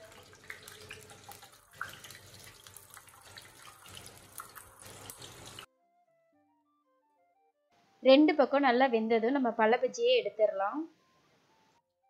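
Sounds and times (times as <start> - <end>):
fritters sizzling in hot oil: 0.0 - 5.7.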